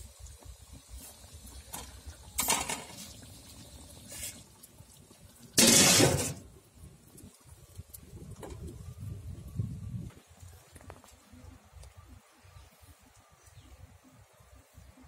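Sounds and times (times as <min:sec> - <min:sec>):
metal lid scraping on pot: 0:05.6 - 0:06.4.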